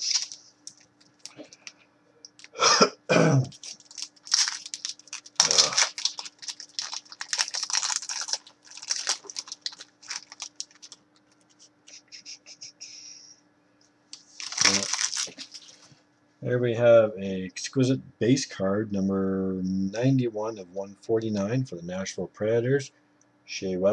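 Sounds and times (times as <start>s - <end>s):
packaging crinkling and rustling: 0.0s - 1.7s, 3.4s - 11.7s, 14.2s - 15.9s.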